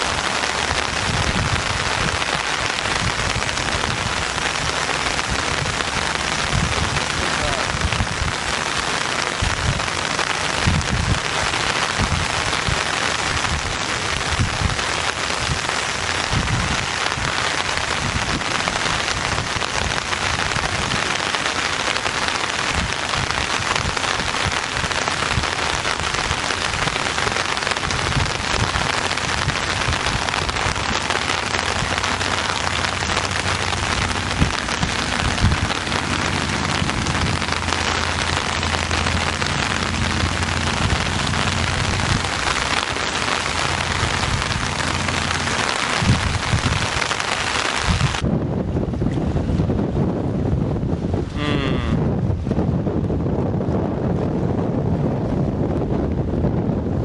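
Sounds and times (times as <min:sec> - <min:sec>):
dull low thumps: 0:00.0 - 0:21.1, 0:27.8 - 0:47.0
rain falling on water: 0:00.0 - 0:57.0.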